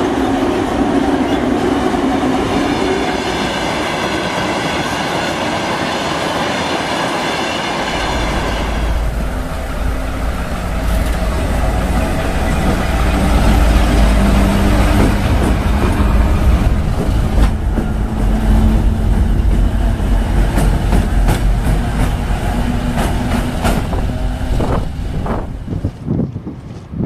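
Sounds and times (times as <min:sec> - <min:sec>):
diesel locomotive engine drone: 0:00.0 - 0:27.0
wheels clicking over rail joints: 0:08.9 - 0:26.8.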